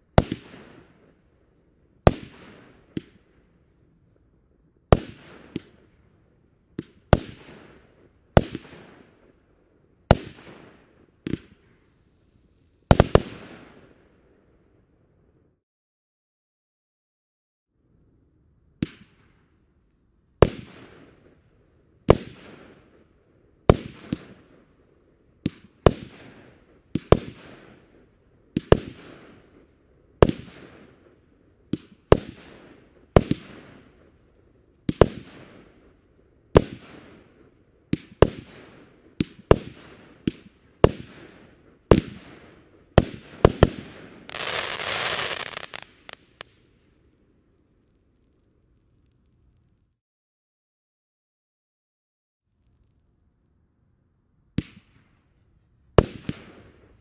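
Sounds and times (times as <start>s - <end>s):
firework bangs with echo: 37.9s - 42.4s, 43.0s - 46.4s
firework rushing crackle: 43.5s - 46.5s.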